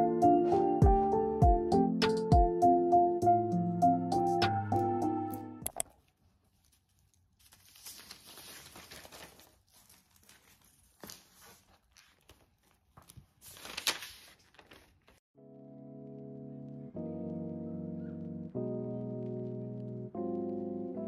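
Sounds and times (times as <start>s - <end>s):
paper pages rustling: 5.9s - 15.2s.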